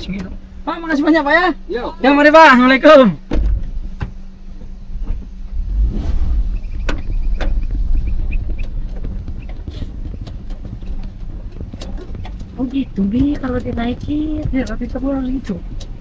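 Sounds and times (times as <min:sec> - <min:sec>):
campervan engine running: 0:00.0 - 0:16.0
knocks and clicks: 0:06.7 - 0:16.0.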